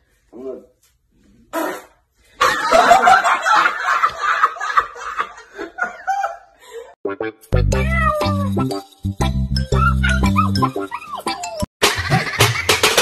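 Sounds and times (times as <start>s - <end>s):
hearty human laughter: 2.4s - 7.0s.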